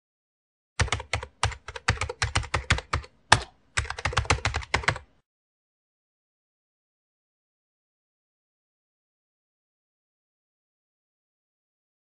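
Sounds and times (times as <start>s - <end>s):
keyboard typing clicks: 0.8s - 5.1s.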